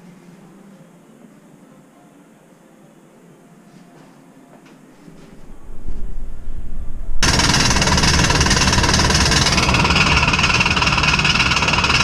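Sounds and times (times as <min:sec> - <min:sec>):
jet engine whine: 0:05.3 - 0:11.5
jet engine roaring: 0:05.6 - 0:10.8.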